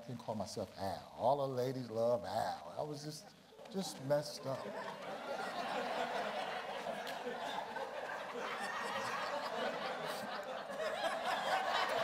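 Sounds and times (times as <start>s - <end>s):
audience laughter: 4.4s - 12.0s.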